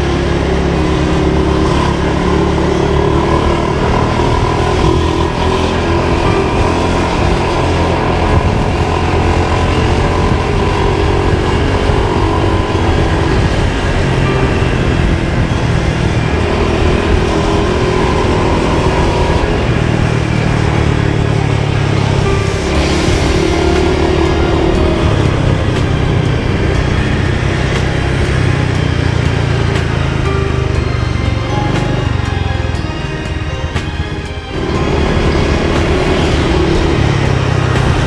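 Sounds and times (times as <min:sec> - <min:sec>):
vehicle engine running: 0:00.0 - 0:38.0.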